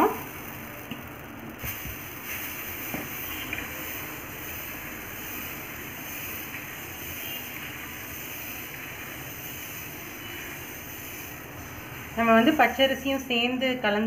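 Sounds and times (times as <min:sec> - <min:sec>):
batter sizzling on hot griddle: 0:00.0 - 0:13.6.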